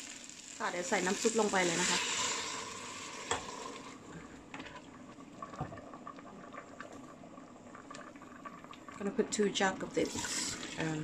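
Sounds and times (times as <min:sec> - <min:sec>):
liquid hissing in hot pot: 0:00.0 - 0:04.1, 0:10.0 - 0:11.0.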